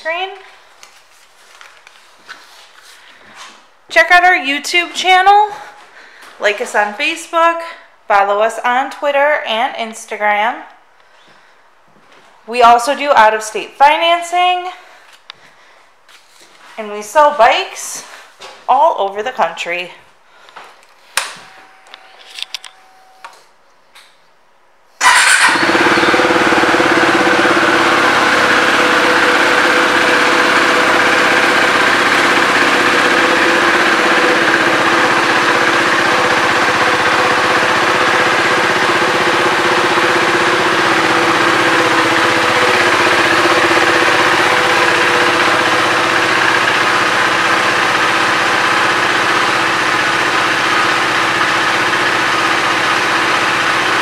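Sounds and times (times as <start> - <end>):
motorcycle engine starting and idling: 21.1 - 23.5, 25.0 - 54.0.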